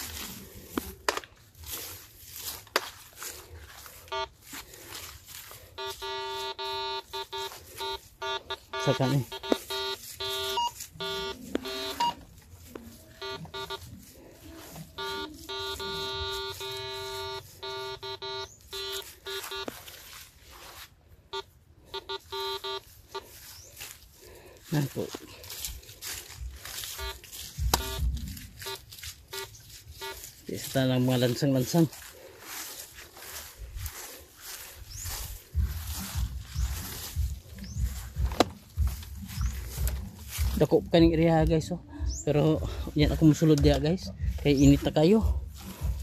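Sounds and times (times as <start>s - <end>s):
rustling and scraping in soil: 0.0s - 46.0s
metal detector buzzing tone: 4.0s - 4.6s, 5.4s - 12.3s, 13.1s - 14.0s, 14.6s - 20.1s, 21.3s - 23.3s, 26.7s - 30.3s.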